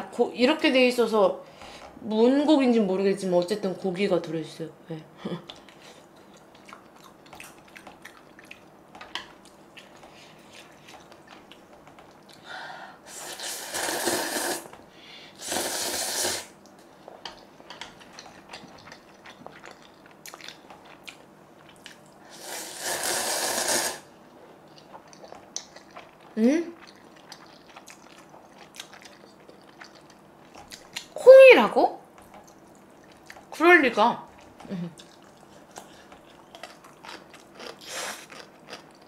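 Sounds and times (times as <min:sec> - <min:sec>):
quiet chewing: 0:05.4 - 0:12.4, 0:16.6 - 0:22.2, 0:24.3 - 0:31.2, 0:32.1 - 0:33.6, 0:34.3 - 0:39.0
person slurping noodles: 0:13.1 - 0:14.7, 0:15.4 - 0:16.5, 0:22.3 - 0:24.1, 0:37.8 - 0:38.4.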